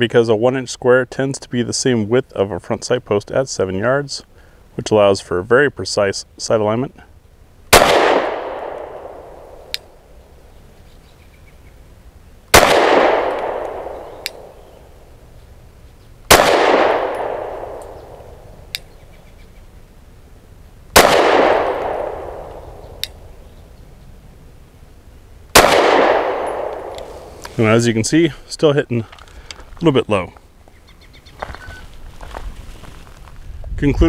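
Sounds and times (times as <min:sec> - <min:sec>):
pistol shots ringing out: 0:07.7 - 0:09.7, 0:12.5 - 0:14.6, 0:16.3 - 0:18.4, 0:20.9 - 0:23.0, 0:25.5 - 0:27.1.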